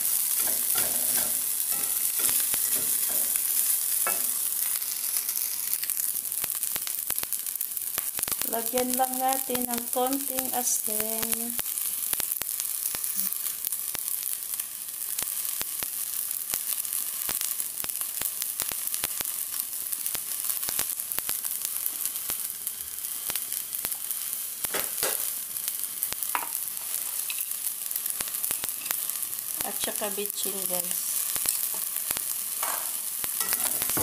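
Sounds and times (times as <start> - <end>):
crackling pops: 0.0 - 14.1, 15.1 - 22.6, 23.2 - 34.0
food sizzling in wok: 0.0 - 34.0.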